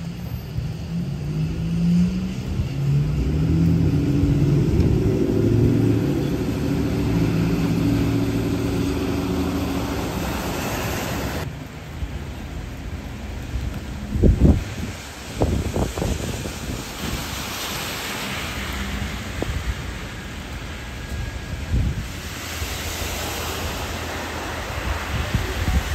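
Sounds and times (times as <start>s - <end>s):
tyres hissing on wet road: 0.0s - 25.9s
passing car engine hum: 1.7s - 11.4s.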